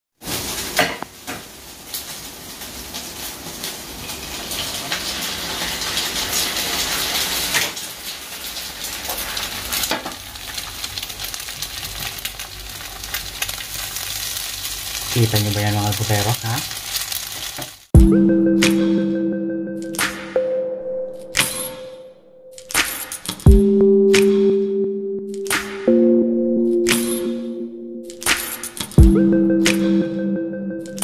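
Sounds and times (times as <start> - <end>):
meat sizzling in pans: 0.2 - 17.9.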